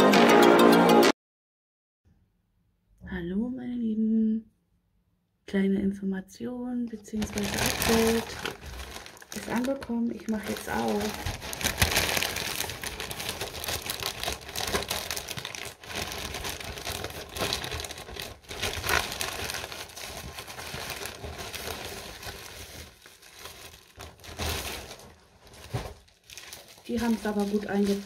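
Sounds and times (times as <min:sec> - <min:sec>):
packaging crackling and tearing: 0:07.2 - 0:28.0.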